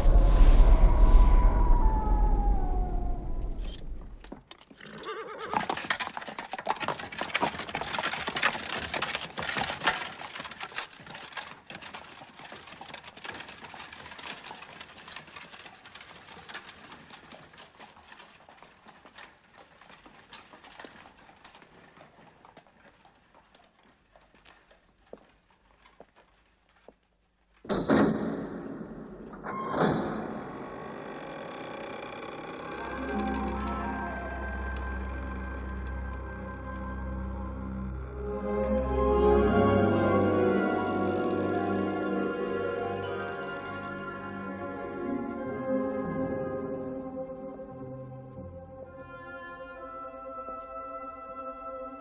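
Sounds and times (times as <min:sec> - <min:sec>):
horse hooves clip-clopping: 0:03.7 - 0:27.8, 0:39.2 - 0:45.4.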